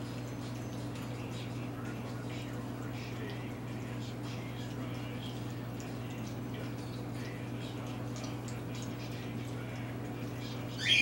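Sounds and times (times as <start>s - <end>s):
puppies lapping and licking: 0.0s - 11.0s.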